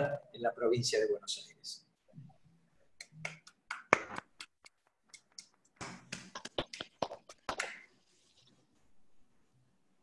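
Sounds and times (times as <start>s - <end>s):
hands clapping in applause: 3.0s - 7.9s.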